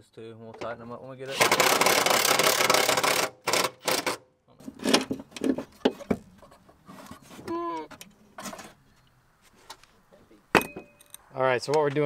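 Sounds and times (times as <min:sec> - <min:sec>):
metal parts knocking and rubbing: 0:01.3 - 0:08.8
pitched squeak: 0:06.8 - 0:08.9.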